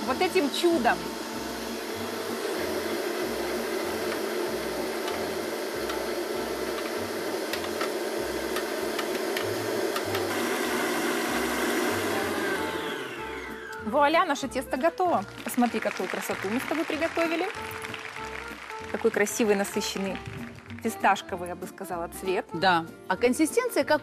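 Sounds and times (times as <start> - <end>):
stand mixer motor running: 0.0 - 13.9.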